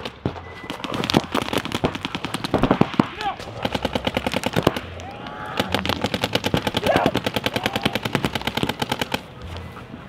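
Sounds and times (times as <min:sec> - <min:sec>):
paintball markers firing rapidly: 0:00.0 - 0:09.3.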